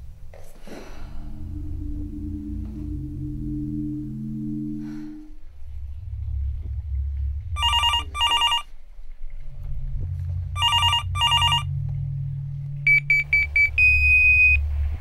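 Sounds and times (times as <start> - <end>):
low steady hum: 0.0 - 15.0
telephone double ring: 7.6 - 8.6, 10.6 - 11.6.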